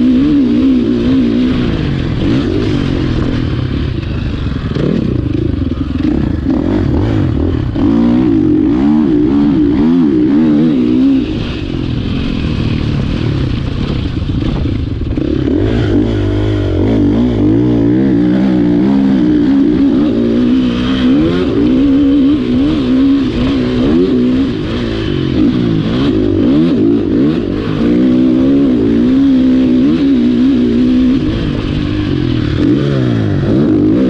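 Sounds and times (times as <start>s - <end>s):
motorcycle engine revving: 0.0s - 34.0s.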